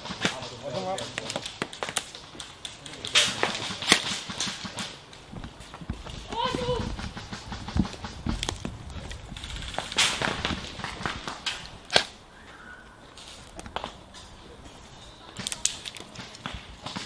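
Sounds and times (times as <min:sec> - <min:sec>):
airsoft guns firing: 0:00.0 - 0:12.2
rustling noise: 0:00.0 - 0:17.0.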